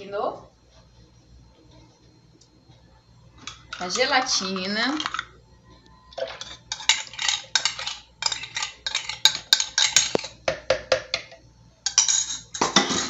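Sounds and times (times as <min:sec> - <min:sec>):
utensil scraping and clinking cup: 0:06.2 - 0:10.4, 0:11.9 - 0:13.0.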